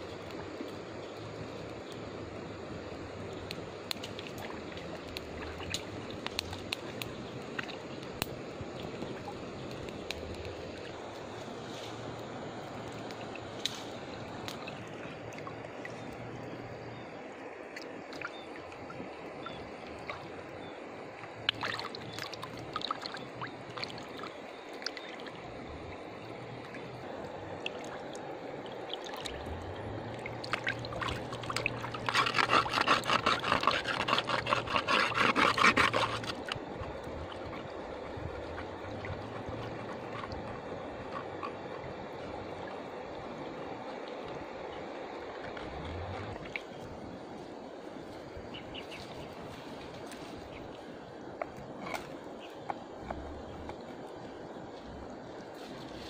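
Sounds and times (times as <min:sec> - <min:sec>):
water trickling: 0:17.8 - 0:56.0.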